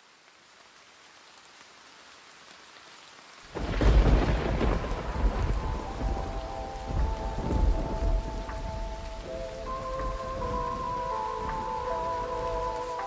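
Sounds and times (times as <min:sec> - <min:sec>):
rain: 0:00.0 - 0:13.0
deep thunder rumble: 0:03.6 - 0:12.8
held musical notes: 0:05.5 - 0:13.0.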